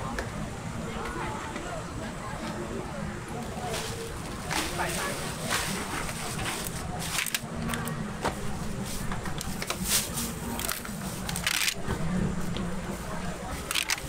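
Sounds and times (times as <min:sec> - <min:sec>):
faint background voices: 0:00.0 - 0:14.0
low steady hum: 0:00.0 - 0:14.0.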